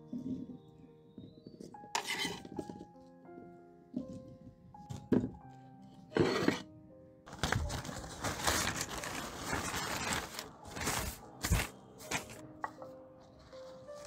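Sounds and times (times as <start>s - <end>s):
background music: 0.0s - 14.0s
paper crinkling and rustling: 7.3s - 14.0s.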